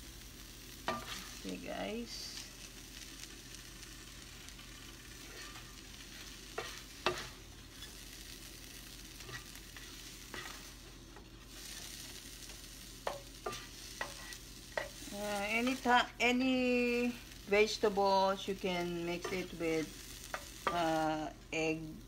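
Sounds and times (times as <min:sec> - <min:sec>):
egg and bread sizzling in a pan: 0:00.0 - 0:22.0
spatula scraping and clicking on pan: 0:00.8 - 0:01.4, 0:04.6 - 0:15.9, 0:19.1 - 0:20.9.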